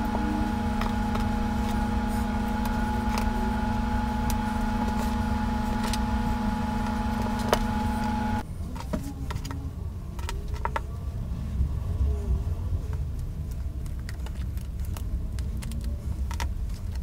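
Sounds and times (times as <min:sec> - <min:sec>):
machine hum with held tones: 0:00.0 - 0:08.4.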